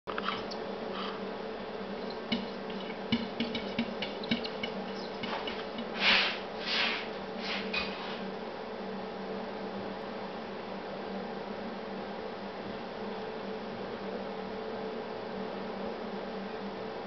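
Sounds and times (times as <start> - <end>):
paws squeaking across glass: 2.0 - 5.7
cat paws tapping on glass: 2.0 - 6.0.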